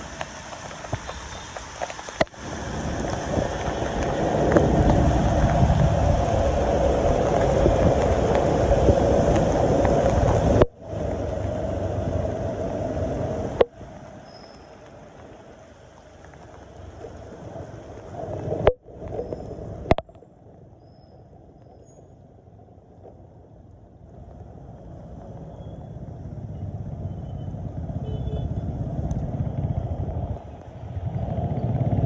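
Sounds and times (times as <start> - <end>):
passing vehicles: 0.0 - 18.1, 22.2 - 32.0
rain: 0.0 - 32.0
wind rushing: 2.4 - 13.6.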